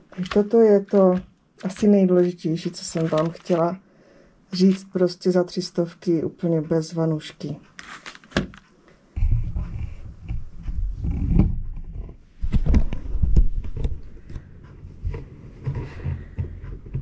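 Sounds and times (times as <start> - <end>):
handling knocks and clicks: 0.0 - 3.7.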